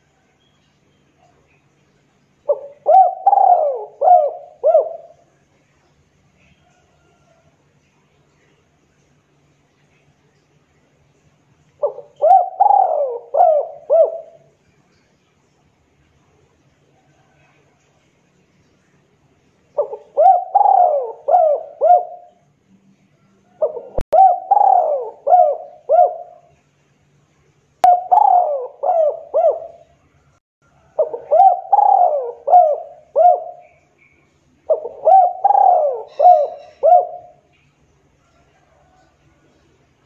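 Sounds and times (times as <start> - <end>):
dove cooing: 2.5 - 5.3, 11.8 - 14.5, 19.8 - 22.4, 23.5 - 26.5, 27.8 - 29.9, 30.8 - 33.8, 34.7 - 37.5.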